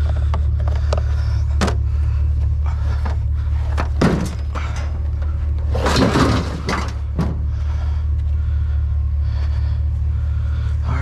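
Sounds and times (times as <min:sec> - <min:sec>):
steady low hum: 0:00.0 - 0:11.0
tv clattering onto scrap metal: 0:05.8 - 0:07.0.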